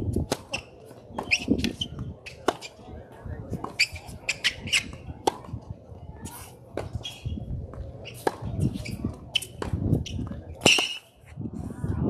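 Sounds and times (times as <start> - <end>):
tennis ball struck by racquets: 0.2 - 2.7, 3.6 - 5.6, 8.1 - 11.0.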